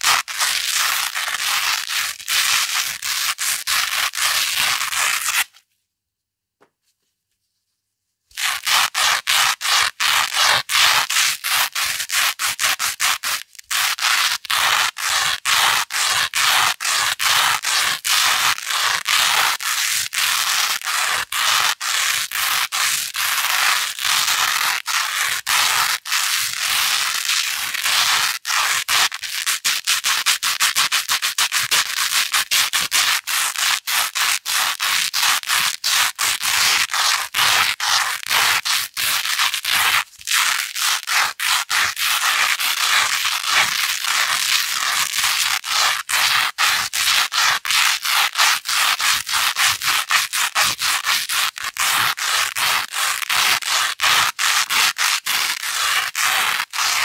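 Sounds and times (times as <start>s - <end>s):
velcro rubbing scratchy strokes: 0.0s - 5.7s, 6.9s - 57.0s.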